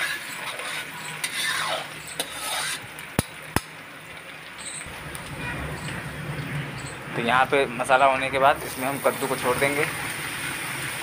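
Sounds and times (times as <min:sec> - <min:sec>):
metal spatula scraping and stirring: 0:00.0 - 0:03.0
food sizzling in hot oil: 0:00.0 - 0:11.0.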